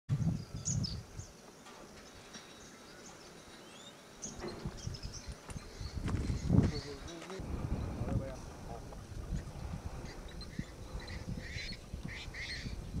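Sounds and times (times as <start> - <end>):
wind buffeting microphone: 0.1 - 1.4, 4.4 - 13.0.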